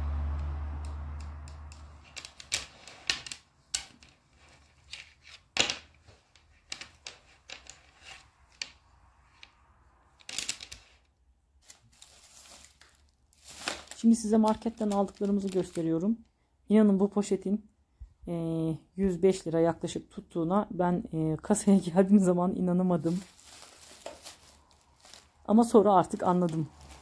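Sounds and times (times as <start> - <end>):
wooden tiles clicking: 0.4 - 9.6, 10.2 - 11.1.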